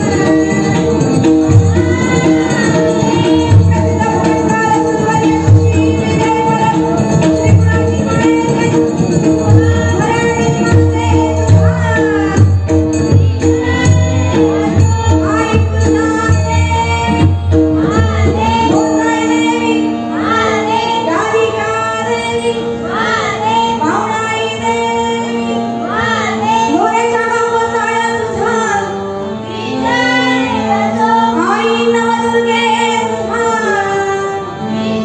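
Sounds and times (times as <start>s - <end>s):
girl singing: 0.0s - 8.8s
percussion strokes: 0.0s - 25.4s.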